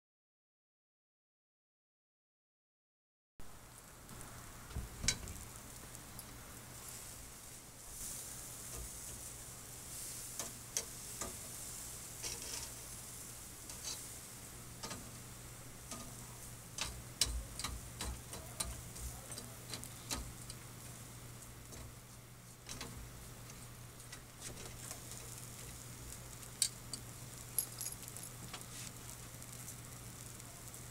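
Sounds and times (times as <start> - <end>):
food sizzling on a grill: 3.4 - 30.9
metal tongs clicking on wire mesh: 14.8 - 15.1, 15.9 - 16.2, 16.8 - 18.8, 19.4 - 20.6.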